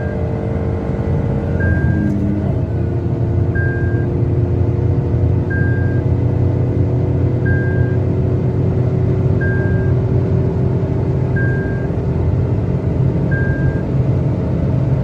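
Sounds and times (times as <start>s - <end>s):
car engine and road noise drone: 0.0s - 15.0s
warning chime beeping: 1.6s - 2.2s, 7.4s - 8.0s.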